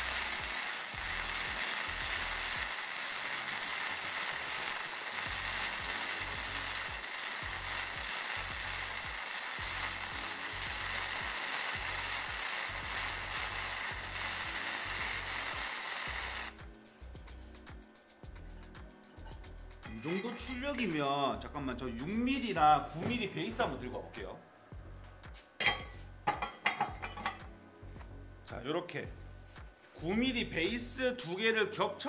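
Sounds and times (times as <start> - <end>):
welding arc crackling: 0.0 - 16.7.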